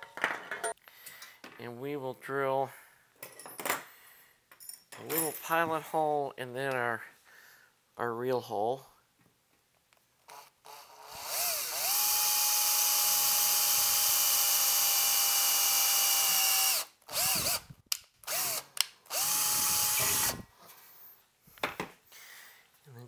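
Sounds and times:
cordless drill boring metal: 0:10.3 - 0:17.7, 0:18.3 - 0:20.4.

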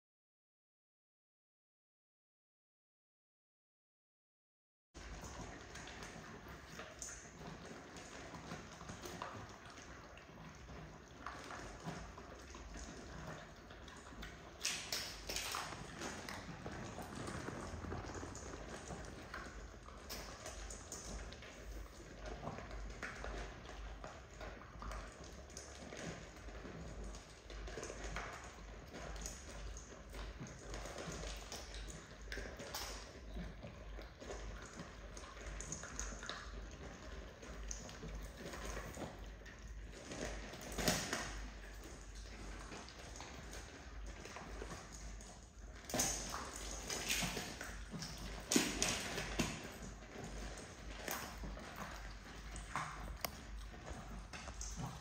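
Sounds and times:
puppies crunching kibble: 0:14.9 - 0:25.0, 0:27.6 - 0:55.0
puppies crunching dry kibble: 0:15.0 - 0:24.6, 0:45.9 - 0:55.0.

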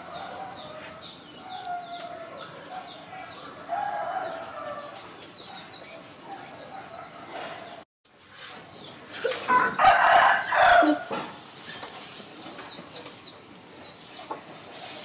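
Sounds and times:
rooster crowing: 0:00.0 - 0:05.1, 0:09.5 - 0:11.2.

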